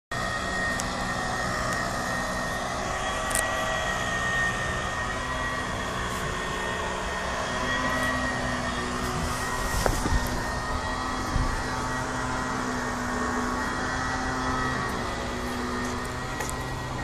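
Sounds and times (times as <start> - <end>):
high steady whine: 0.1 - 17.0
small engine running: 0.1 - 17.0.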